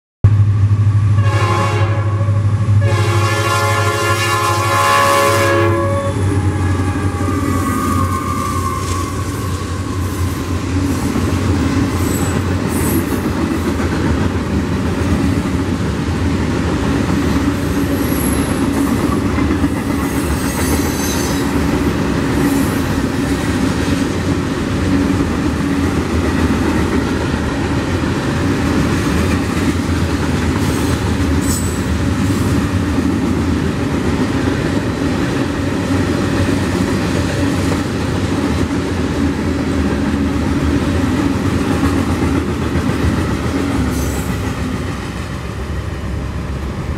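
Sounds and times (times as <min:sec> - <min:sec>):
train wheels rumbling on rail: 0:00.2 - 0:46.9
high wheel squeals: 0:05.9 - 0:11.0, 0:20.2 - 0:21.5, 0:30.7 - 0:31.9.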